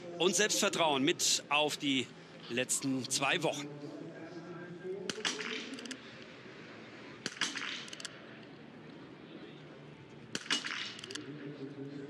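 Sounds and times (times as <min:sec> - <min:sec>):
rifle shots: 0:05.1 - 0:05.9, 0:07.2 - 0:08.1, 0:10.3 - 0:11.2
rifle bolt clicking: 0:07.3 - 0:08.1.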